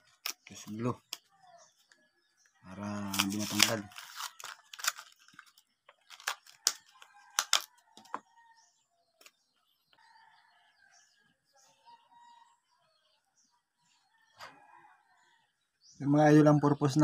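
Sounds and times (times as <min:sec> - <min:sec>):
plastic blister pack crackling: 0:03.0 - 0:07.7.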